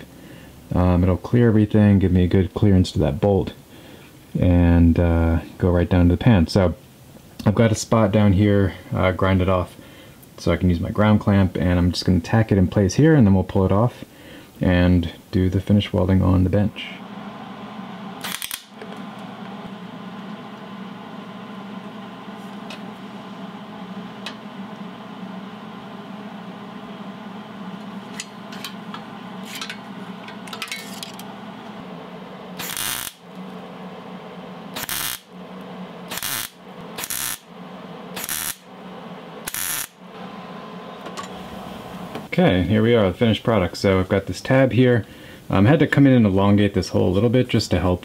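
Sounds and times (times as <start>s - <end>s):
background hum: 0.0s - 48.0s
welding crackle: 18.2s - 18.8s, 32.6s - 33.3s, 34.8s - 35.3s, 36.1s - 37.5s, 38.2s - 38.7s, 39.5s - 40.0s.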